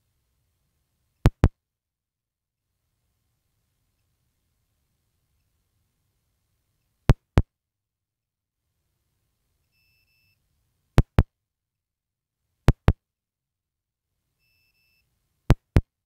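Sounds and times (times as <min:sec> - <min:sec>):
sharp clicks: 0:01.2 - 0:01.5
faint short beep: 0:09.6 - 0:10.4, 0:14.4 - 0:15.1.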